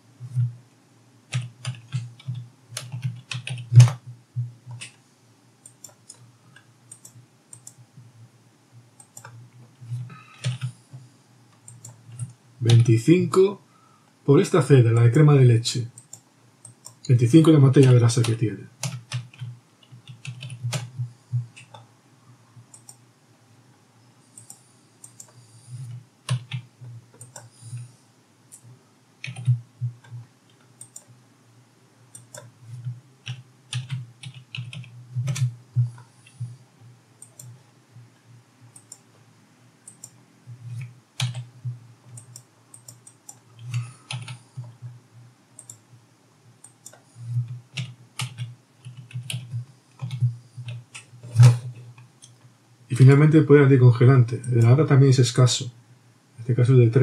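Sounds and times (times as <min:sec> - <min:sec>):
typing on computer keyboard: 0:01.3 - 0:04.0, 0:04.7 - 0:05.0, 0:09.0 - 0:10.8, 0:17.8 - 0:21.8, 0:24.4 - 0:27.8, 0:29.2 - 0:31.1, 0:32.2 - 0:36.5, 0:39.9 - 0:41.5, 0:42.1 - 0:44.8, 0:46.6 - 0:52.4.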